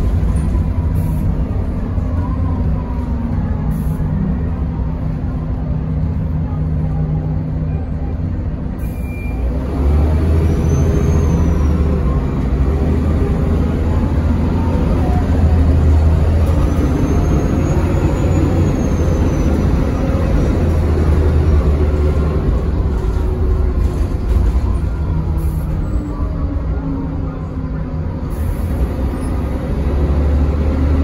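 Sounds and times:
bus diesel engine: 0.0 - 31.0.

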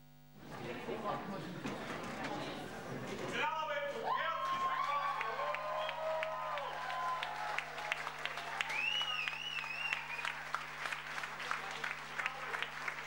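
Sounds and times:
audience applauding: 4.3 - 13.0
wavering high whistle: 8.7 - 10.2.

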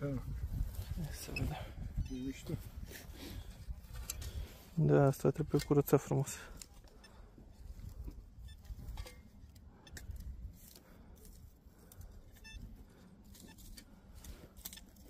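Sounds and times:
wind rumble on microphone: 0.0 - 4.6
short electronic beep: 1.3 - 2.4.

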